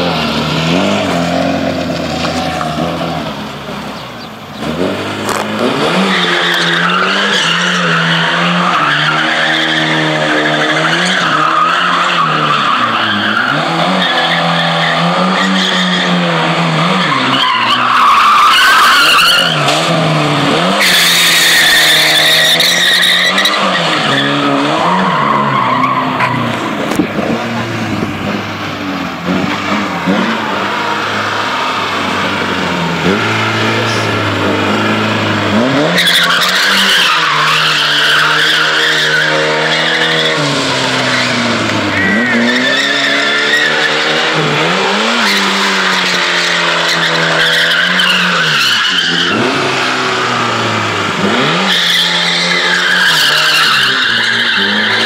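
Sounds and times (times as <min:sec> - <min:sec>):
car engine revving: 0:00.0 - 0:55.0
tyres squealing on asphalt: 0:00.0 - 0:55.0.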